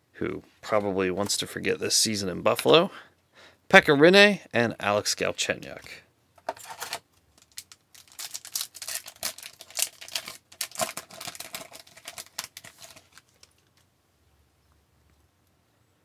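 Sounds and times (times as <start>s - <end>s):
foil wrapper crinkling and tearing: 6.6s - 13.8s.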